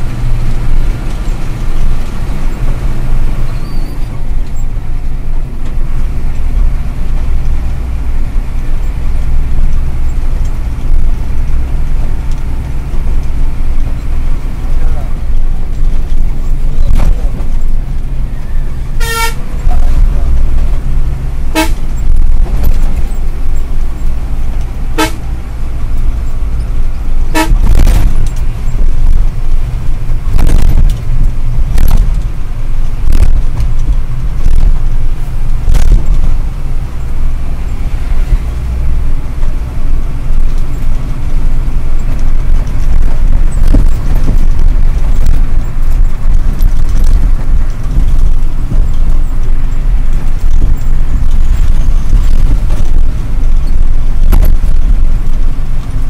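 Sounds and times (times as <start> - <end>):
truck diesel engine drone: 0.0 - 56.0
truck horn toots: 18.9 - 19.7, 21.5 - 22.0, 24.9 - 25.4, 27.2 - 27.9.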